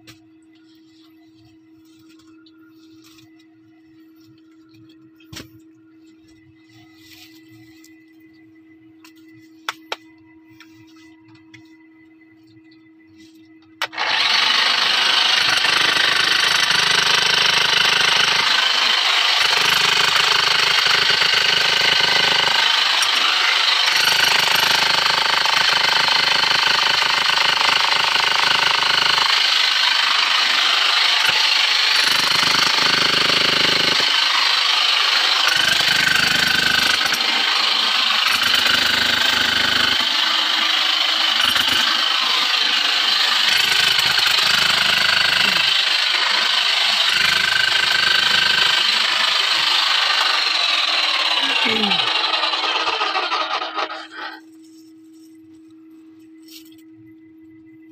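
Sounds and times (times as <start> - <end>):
rotary hammer pounding rock: 13.9 - 53.2.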